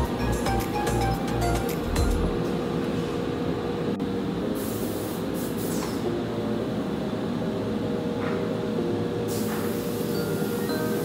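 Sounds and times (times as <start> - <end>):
hiss: 4.6 - 6.0, 9.3 - 11.0.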